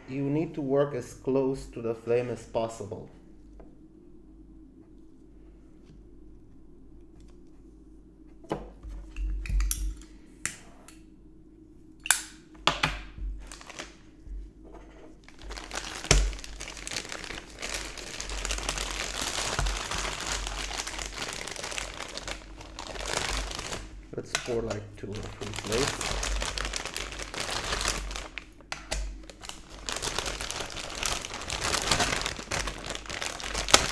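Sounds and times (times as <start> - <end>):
plastic sleeve crinkling: 13.3 - 14.1, 15.2 - 33.9.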